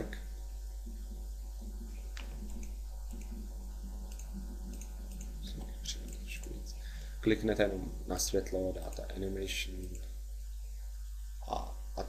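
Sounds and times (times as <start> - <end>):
microphone hum and hiss: 0.0 - 12.0
computer mouse clicks: 2.1 - 3.4, 4.0 - 6.6, 9.8 - 10.1.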